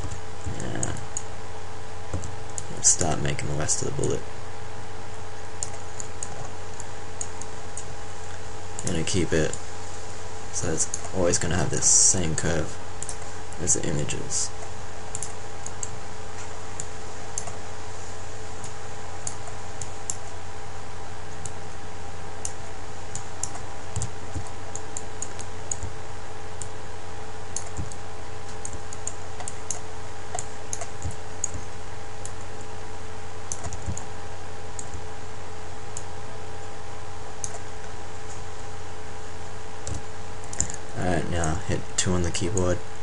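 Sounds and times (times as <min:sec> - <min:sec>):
computer mouse and keyboard clicks: 0:00.0 - 0:01.3, 0:05.6 - 0:07.9, 0:14.6 - 0:17.6, 0:27.6 - 0:32.5, 0:33.5 - 0:34.1, 0:37.4 - 0:37.7
steady background hum: 0:00.0 - 0:43.0.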